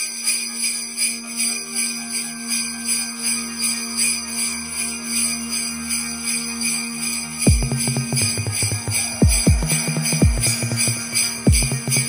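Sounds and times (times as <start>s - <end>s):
sleigh bells shaken: 0.0s - 12.0s
held low note: 3.6s - 12.0s.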